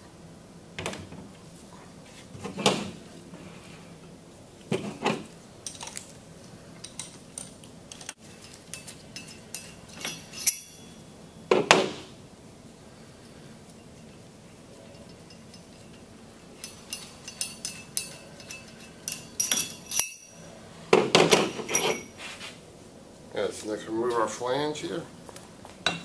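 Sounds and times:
loose steel bolts clinking: 6.8s - 10.9s, 15.0s - 20.4s, 21.2s - 22.1s
metallic ring: 8.3s - 11.4s, 14.8s - 20.6s, 21.4s - 22.2s.

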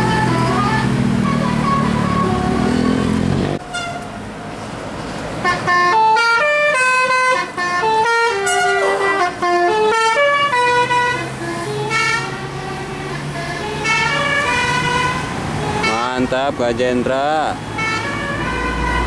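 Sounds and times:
musical air horn tune: 5.4s - 16.2s.

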